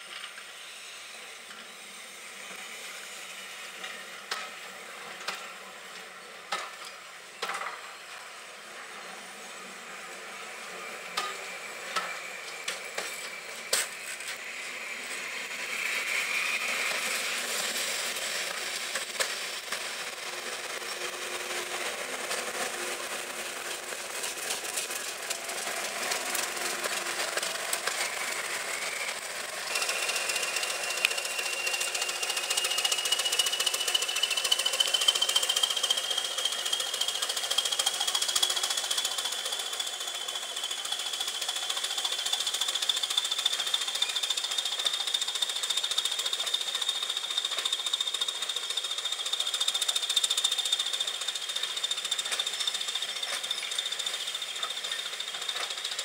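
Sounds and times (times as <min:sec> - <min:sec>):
diesel locomotive engines running: 0:00.0 - 0:56.0
diesel locomotive whine pulling away: 0:00.0 - 0:56.0
train wheels clicking over rail joints: 0:03.7 - 0:08.3, 0:10.6 - 0:56.0.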